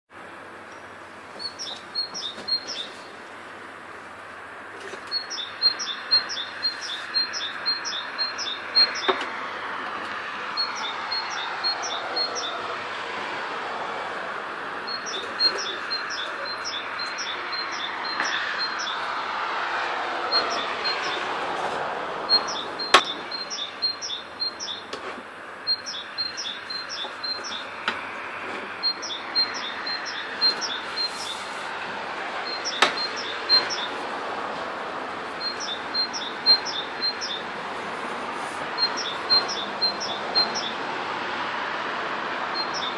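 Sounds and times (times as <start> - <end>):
rushing background noise: 0.1 - 42.9
small bird chirping: 0.7 - 3.1, 5.1 - 9.2, 14.9 - 19.0, 22.3 - 25.0, 25.7 - 27.8, 28.8 - 31.4, 32.4 - 34.0, 35.4 - 37.5, 38.8 - 40.8, 42.6 - 42.9.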